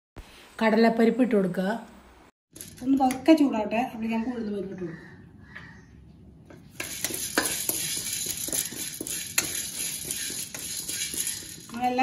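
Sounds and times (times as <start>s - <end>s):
grains clicking on metal pan: 6.8s - 12.0s
spatula stirring lentils in a pan: 6.8s - 12.0s.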